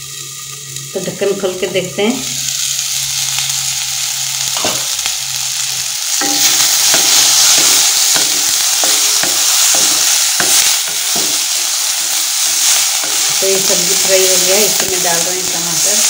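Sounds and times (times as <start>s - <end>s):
vegetables sizzling in oil: 0.0s - 16.0s.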